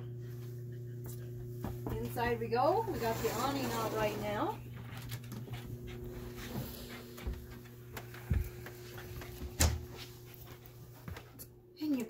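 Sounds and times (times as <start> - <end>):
steady low hum: 0.0 - 12.0
footsteps on wooden deck: 1.6 - 2.3, 4.7 - 11.4.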